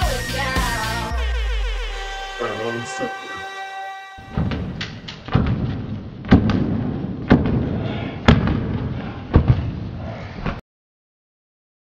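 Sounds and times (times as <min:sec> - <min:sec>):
heavy footsteps on hard floor: 0:04.2 - 0:09.7.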